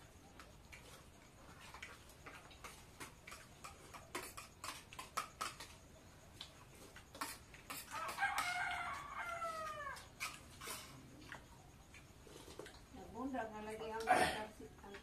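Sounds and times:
rooster crowing: 0:07.9 - 0:10.1.

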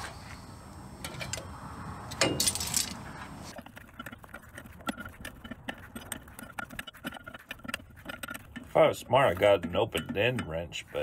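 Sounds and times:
metal tools clinking: 0:02.1 - 0:03.1.

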